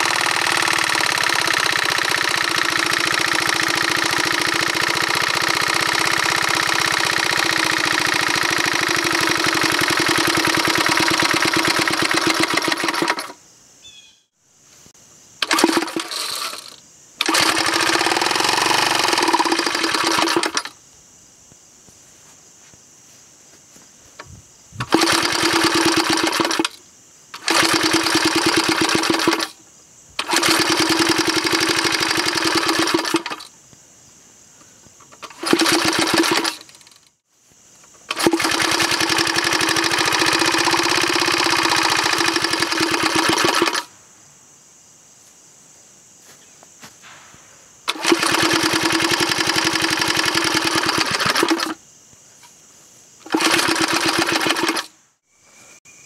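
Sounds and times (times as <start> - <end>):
small engine firing in bursts: 0.0 - 13.4, 15.4 - 20.8, 24.8 - 29.6, 30.2 - 33.5, 35.1 - 37.1, 38.0 - 43.9, 47.9 - 51.8, 53.2 - 55.0.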